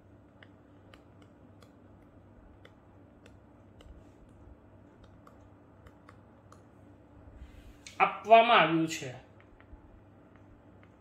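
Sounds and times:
steady low hum: 0:00.0 - 0:11.0
stylus tapping on tablet screen: 0:00.2 - 0:06.7, 0:09.3 - 0:11.0.

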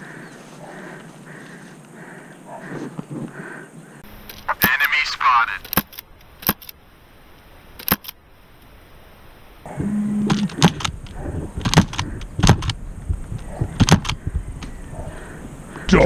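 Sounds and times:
sharp click: 0:05.6 - 0:06.8, 0:07.8 - 0:08.2, 0:13.8 - 0:14.7.

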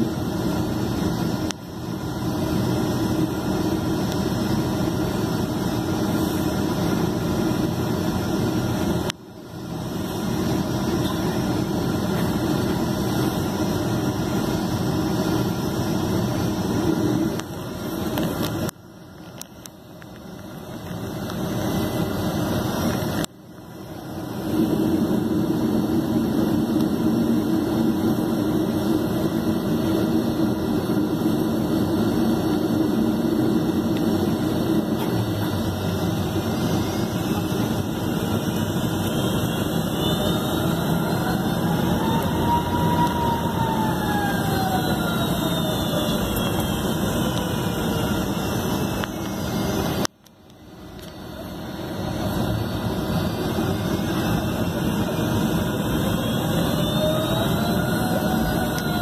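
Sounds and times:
jet engine hum: 0:00.0 - 0:59.0
faint tone rising and falling: 0:24.2 - 0:49.5, 0:51.9 - 0:59.0.

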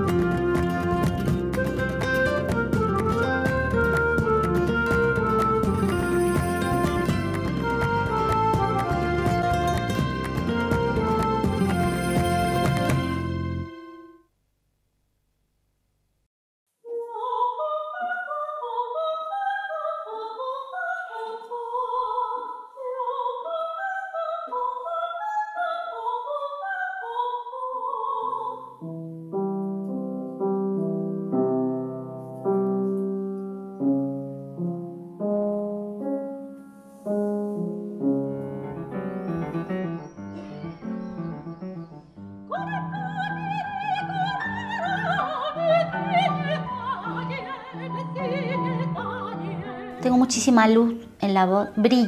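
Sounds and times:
soprano singing opera: 0:16.8 - 0:28.8, 0:42.5 - 0:50.8.

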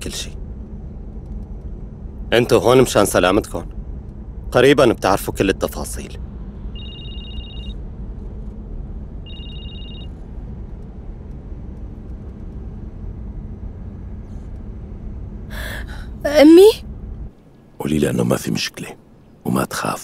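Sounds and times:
phone ringing tone beeps: 0:06.8 - 0:07.8, 0:09.3 - 0:10.1.

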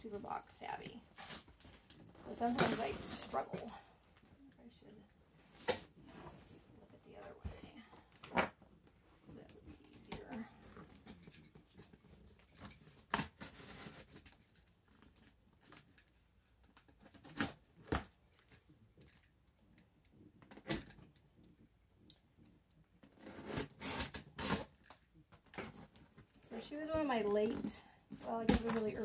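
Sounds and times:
cutting through packing tape: 0:23.4 - 0:24.8.

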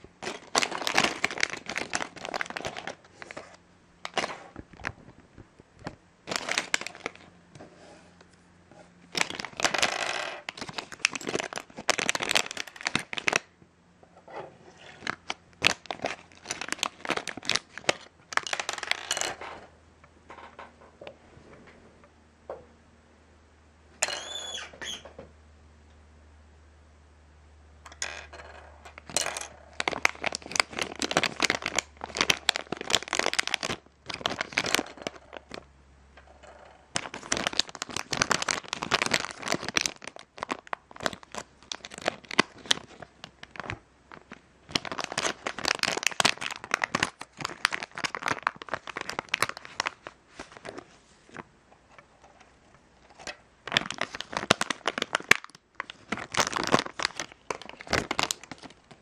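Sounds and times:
plastic foil bag crinkling: 0:00.0 - 0:05.1, 0:06.2 - 0:07.3, 0:09.1 - 0:13.5, 0:14.8 - 0:19.4, 0:29.0 - 0:35.7, 0:36.9 - 0:51.4, 0:53.0 - 0:59.0.

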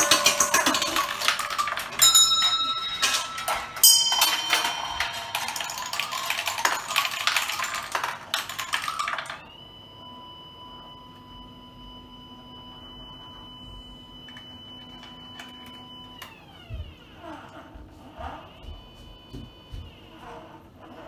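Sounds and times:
bell ringing: 0:00.0 - 0:09.4
marbles clattering through metal pins: 0:00.0 - 0:09.4.

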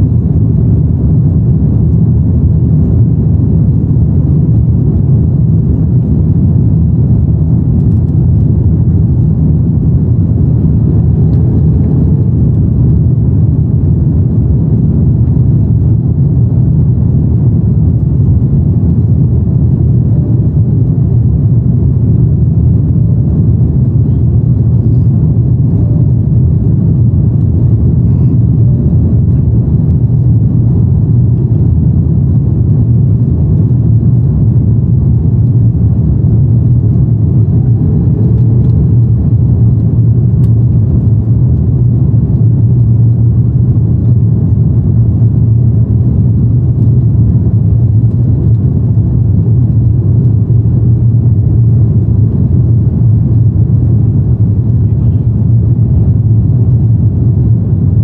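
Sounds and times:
airplane cabin low rumble: 0:00.0 - 0:58.0.

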